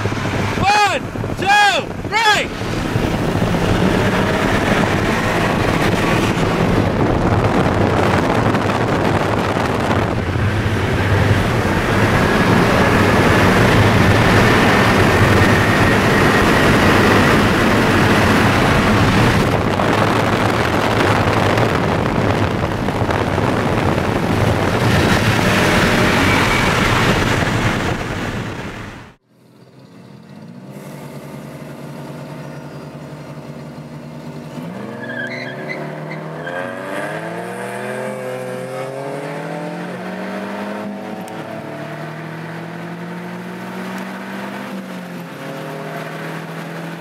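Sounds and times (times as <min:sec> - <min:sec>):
wind noise: 0:00.0 - 0:29.2
car engine roaring: 0:00.0 - 0:47.0
road noise: 0:00.0 - 0:47.0.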